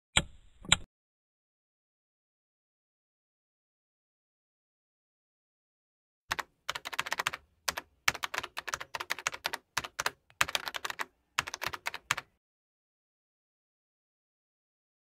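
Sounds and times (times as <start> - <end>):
computer keyboard typing: 6.3 - 12.4.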